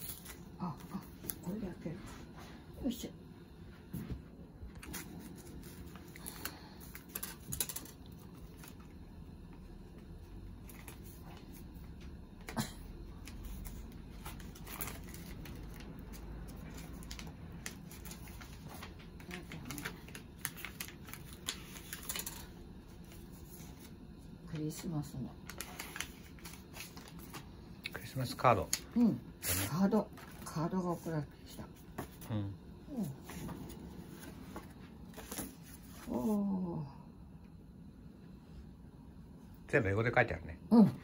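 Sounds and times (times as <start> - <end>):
paper envelope rustling: 4.8 - 8.8, 13.2 - 23.9, 25.4 - 27.5, 33.2 - 36.2.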